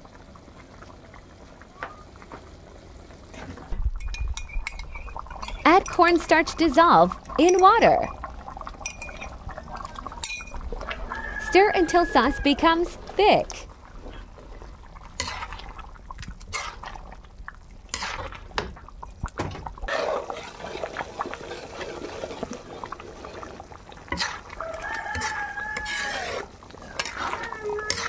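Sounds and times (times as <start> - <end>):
pot being stirred: 3.9 - 28.0
rooster crowing: 10.9 - 12.8, 24.5 - 28.0.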